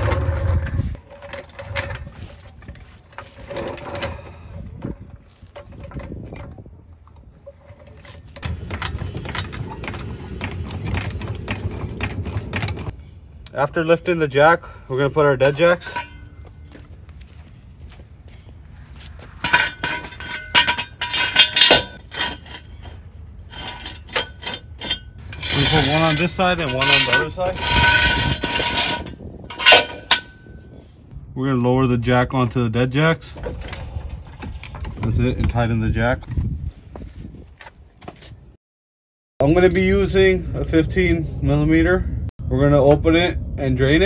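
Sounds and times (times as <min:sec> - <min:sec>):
low rumble: 0:00.0 - 0:13.7.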